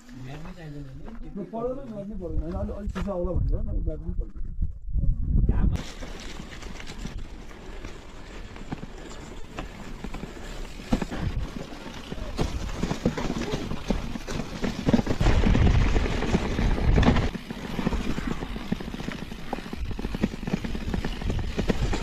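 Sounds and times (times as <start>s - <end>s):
wind buffeting microphone: 2.2s - 5.9s
bike rattling over bumps: 5.7s - 22.0s
bike tyres on dirt and stones: 5.7s - 22.0s.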